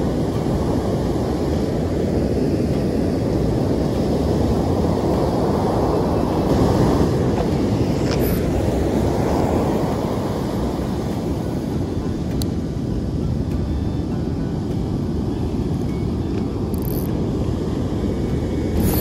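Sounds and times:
heavy surf breaking: 0:00.0 - 0:13.1
wind buffeting microphone: 0:00.0 - 0:19.0.

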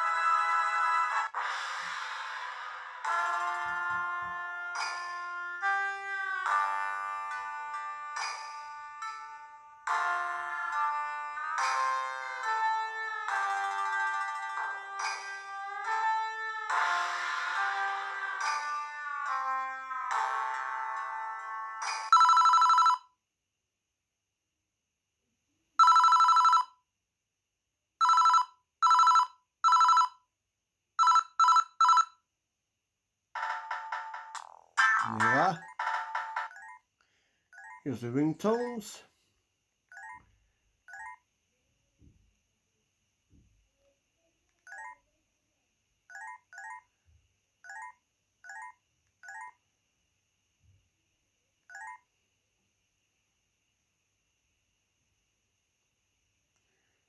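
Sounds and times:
two-tone electronic phone ringtone: 0:21.8 - 0:23.2, 0:25.8 - 0:26.8, 0:28.0 - 0:30.3, 0:31.0 - 0:32.2, 0:37.6 - 0:37.8, 0:39.9 - 0:40.2.

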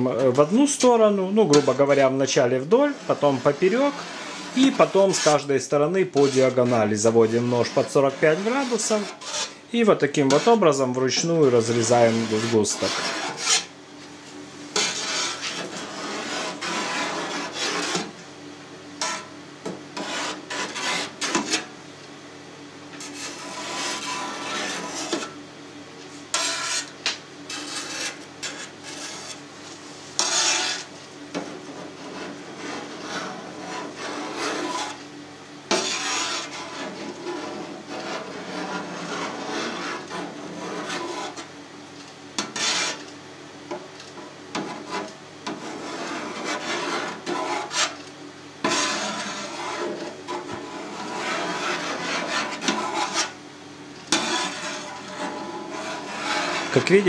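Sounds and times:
knife blade scraping steel pan: 0:01.4 - 0:02.1, 0:02.7 - 0:09.6, 0:10.2 - 0:10.6, 0:11.2 - 0:13.7, 0:14.8 - 0:18.1, 0:19.0 - 0:19.3, 0:20.0 - 0:21.7, 0:23.0 - 0:25.4, 0:26.3 - 0:29.4, 0:30.2 - 0:35.0, 0:35.7 - 0:41.5, 0:42.4 - 0:43.0, 0:44.5 - 0:48.0, 0:48.6 - 0:53.4, 0:54.1 - 0:57.0.

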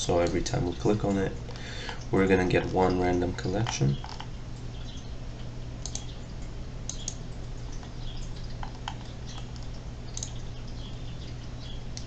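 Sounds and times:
steady low hum: 0:00.0 - 0:12.0
computer mouse clicks: 0:05.8 - 0:06.2, 0:06.9 - 0:07.2, 0:07.8 - 0:10.4
scroll-wheel ticks: 0:05.8 - 0:06.2, 0:06.9 - 0:07.2.

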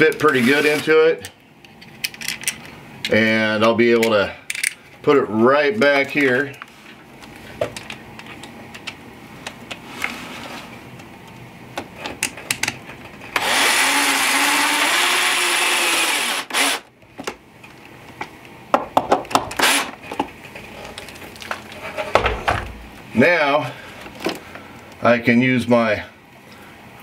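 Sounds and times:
wires and plastic rattling: 0:00.0 - 0:04.8, 0:06.0 - 0:13.4, 0:20.0 - 0:22.7
power drill driving screw into wood: 0:13.4 - 0:16.9, 0:19.6 - 0:20.0.

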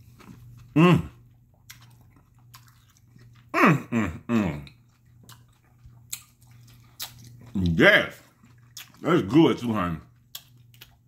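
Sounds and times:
man chewing: 0:00.0 - 0:11.0
man humming with enjoyment: 0:00.7 - 0:01.2, 0:03.5 - 0:04.7.

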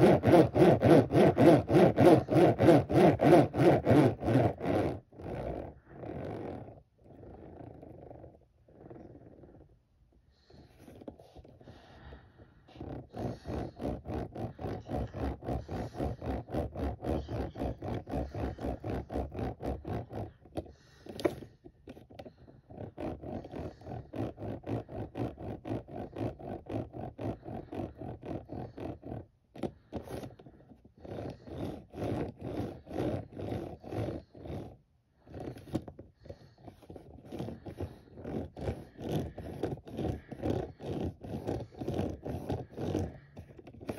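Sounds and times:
toy truck tyres rolling and scraping: 0:10.5 - 0:43.9.

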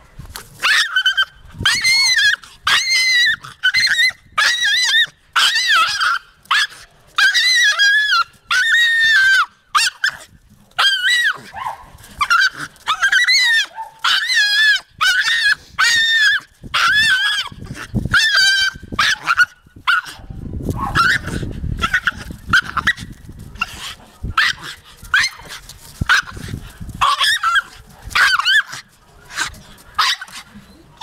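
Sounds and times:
terrier yelping: 0:00.6 - 0:10.2, 0:10.8 - 0:20.2, 0:20.8 - 0:31.0.

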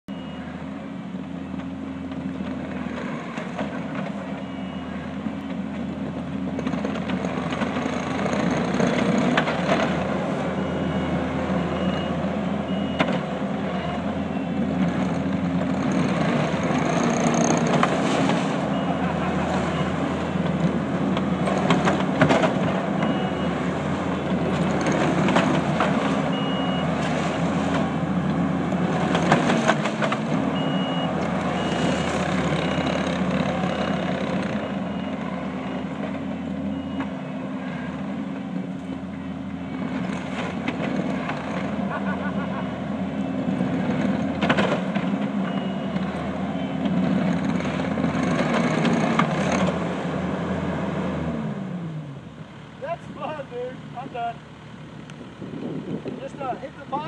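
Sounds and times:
backup alarm beeps: 0:00.1 - 0:00.5, 0:04.4 - 0:05.0, 0:10.5 - 0:13.1, 0:26.3 - 0:27.4
track loader engine running: 0:00.1 - 0:57.0.

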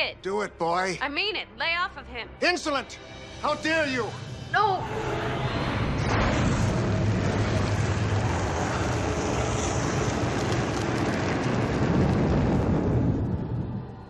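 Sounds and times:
fire burning with deep rumble: 0:05.7 - 0:14.0.

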